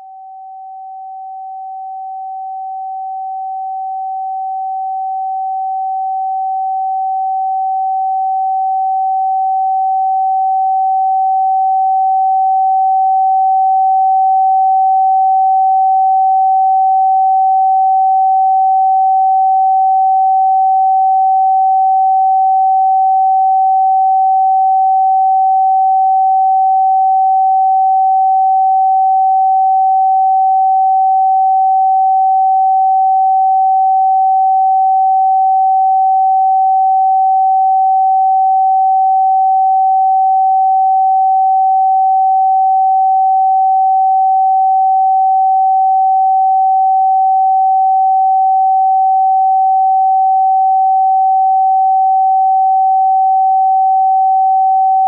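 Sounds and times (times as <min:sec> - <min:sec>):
steady sine tone: 0:00.0 - 0:55.0.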